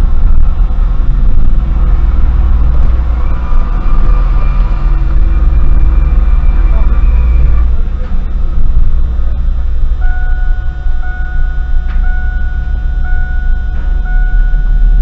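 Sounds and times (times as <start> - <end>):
car engine and road rumble: 0.0 - 15.0
electronic beep: 10.0 - 15.0.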